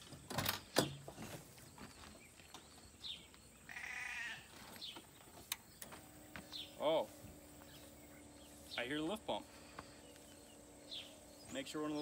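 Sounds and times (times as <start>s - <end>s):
sheep bleating: 3.7s - 4.5s.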